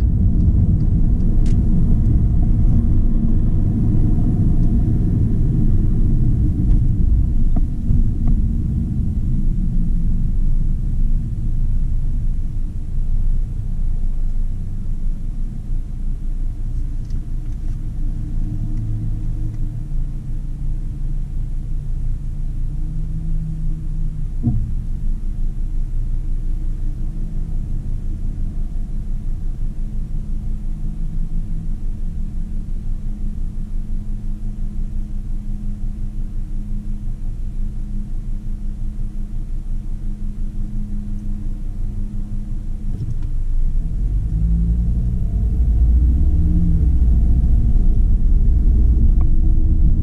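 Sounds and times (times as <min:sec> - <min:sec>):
car engine idling: 0:00.0 - 0:50.0.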